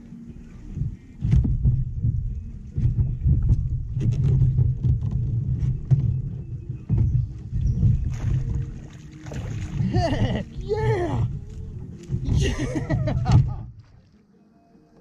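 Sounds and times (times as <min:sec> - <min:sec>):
kayak hull and gear knocking: 0:01.2 - 0:08.7.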